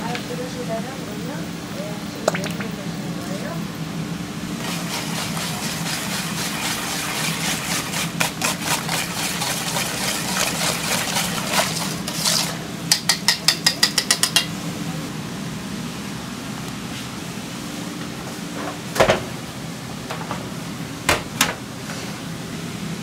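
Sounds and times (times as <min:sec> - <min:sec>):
whisk beating eggs in metal bowl: 0:04.6 - 0:14.5
whisk clacking against bowl: 0:04.6 - 0:14.5.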